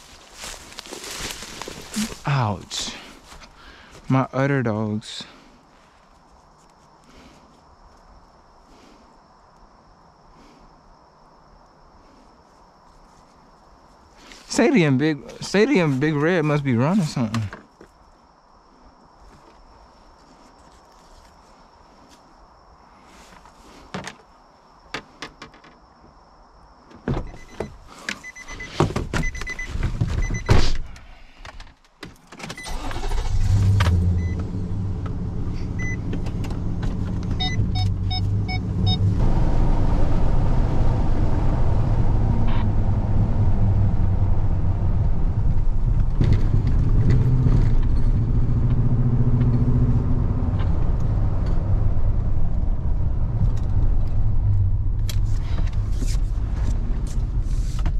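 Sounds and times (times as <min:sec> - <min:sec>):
truck engine starting and running: 0:00.0 - 0:03.2, 0:32.4 - 0:57.9.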